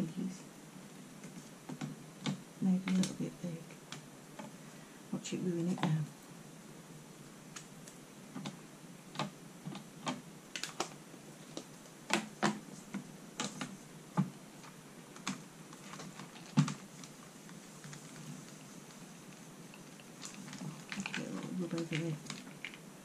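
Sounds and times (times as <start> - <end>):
plastic parts clicking and tapping: 8.4 - 17.1, 19.8 - 22.8.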